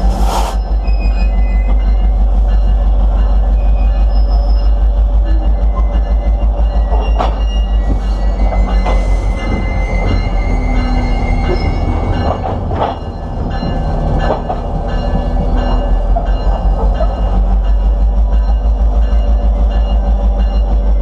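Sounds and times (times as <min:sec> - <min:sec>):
freight car wheels rumbling: 0:11.4 - 0:17.3.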